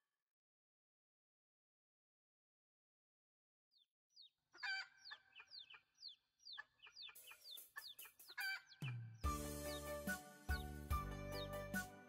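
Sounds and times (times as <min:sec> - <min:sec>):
hen clucking: 0:04.2 - 0:09.0.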